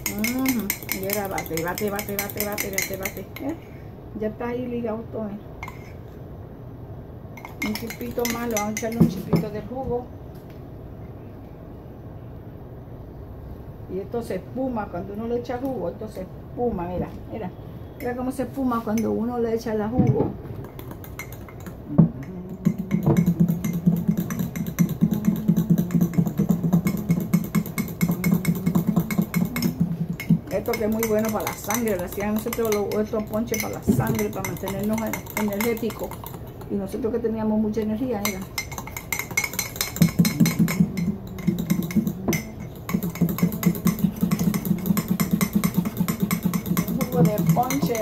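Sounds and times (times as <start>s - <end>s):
metal spoon clinking against mug: 0.0s - 3.5s, 7.4s - 9.6s, 20.6s - 37.0s, 37.8s - 48.0s.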